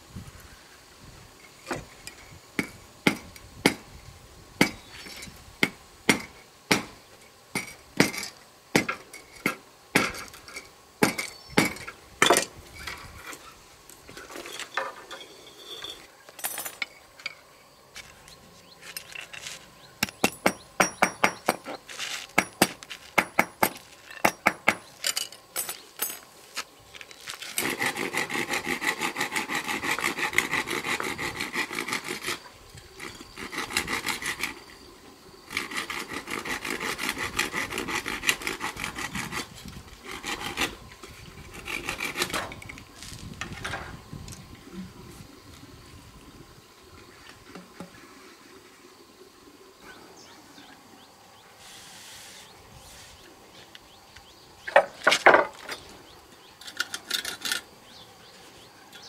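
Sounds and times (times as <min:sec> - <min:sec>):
hammer on metal pieces: 0:20.0 - 0:21.7
hand tool rasping along wood: 0:27.5 - 0:34.6, 0:35.5 - 0:40.8, 0:41.4 - 0:42.5.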